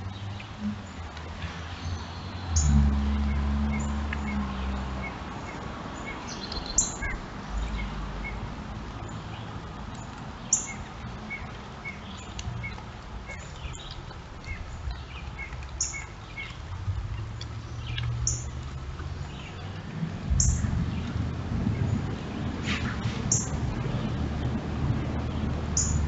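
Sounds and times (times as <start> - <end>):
birds calling high notes: 1.9 - 8.4.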